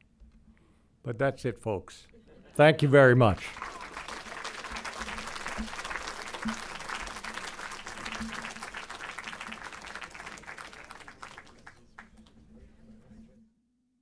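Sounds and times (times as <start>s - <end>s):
audience applauding: 3.3s - 12.5s.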